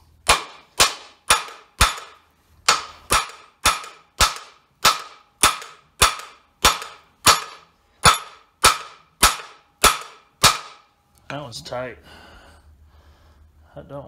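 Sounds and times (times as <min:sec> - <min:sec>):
hammer striking steel: 0:00.0 - 0:10.9.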